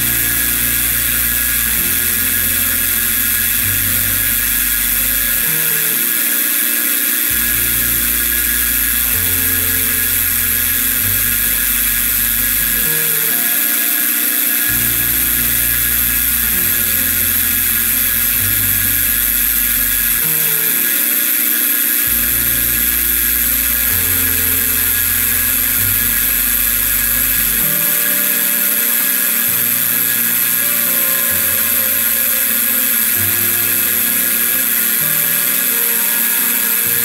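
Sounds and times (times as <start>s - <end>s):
background music: 0.0s - 37.0s
milling spindle high whine: 0.0s - 37.0s.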